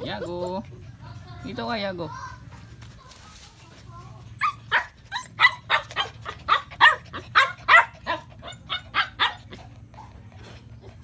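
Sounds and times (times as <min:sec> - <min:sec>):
puppy yapping: 0:04.4 - 0:09.6.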